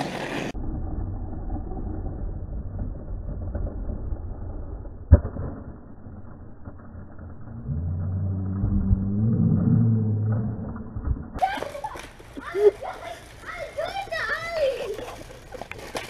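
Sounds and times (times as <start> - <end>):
skateboard wheels rolling on asphalt: 0.0 - 16.0
low hum with tones: 4.6 - 11.4.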